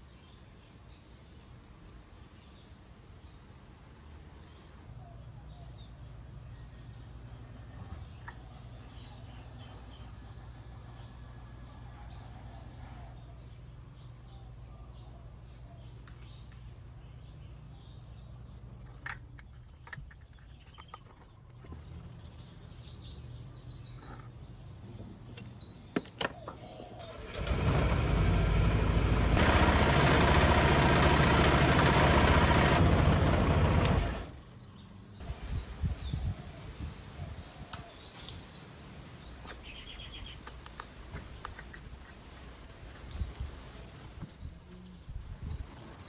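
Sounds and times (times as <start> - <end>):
scooter engine idling: 27.1 - 34.4.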